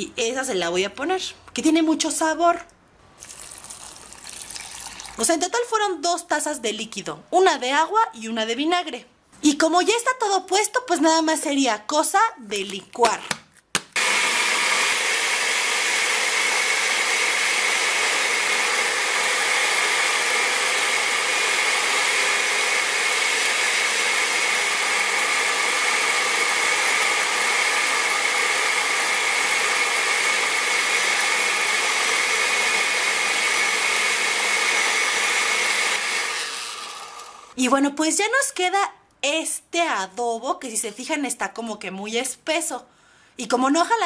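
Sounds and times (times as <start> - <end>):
liquid pouring: 3.2 - 5.2
blender running: 14.0 - 37.6.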